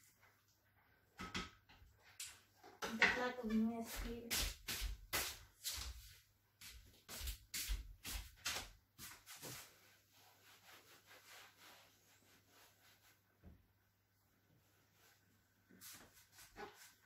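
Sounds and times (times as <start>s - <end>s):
kitchen knocks and scrapes: 2.7s - 5.3s.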